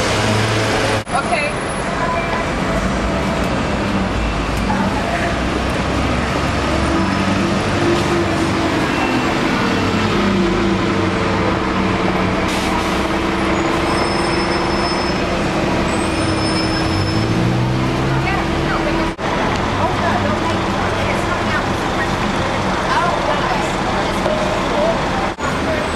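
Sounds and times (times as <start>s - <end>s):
street noise: 0.0s - 25.9s
vehicle engines running: 0.0s - 25.9s.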